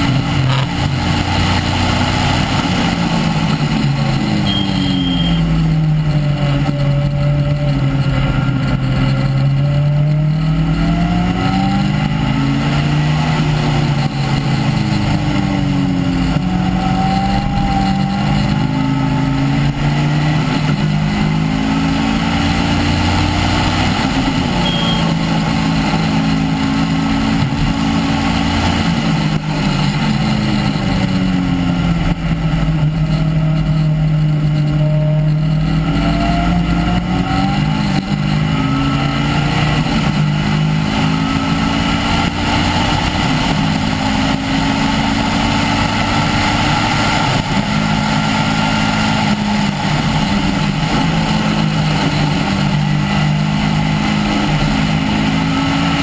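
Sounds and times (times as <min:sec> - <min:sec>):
race car engine at full throttle: 0:00.0 - 0:56.0.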